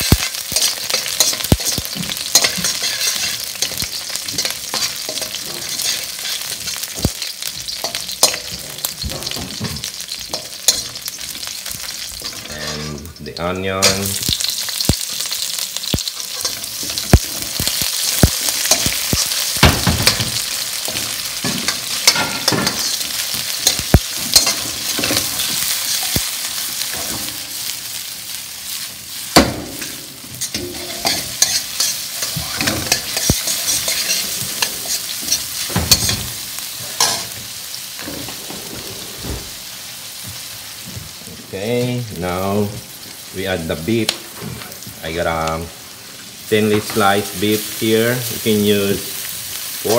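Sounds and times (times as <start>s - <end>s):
onion sizzling in hot oil: 0.0s - 49.9s
metal ladle scraping wok: 0.6s - 13.2s, 20.8s - 26.2s, 29.8s - 37.4s.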